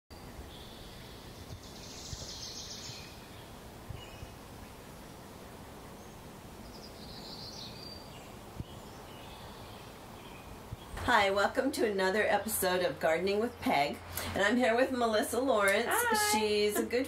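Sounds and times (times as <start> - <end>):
faint birdsong: 0.1 - 14.4
outdoor ambience hiss: 0.1 - 17.0.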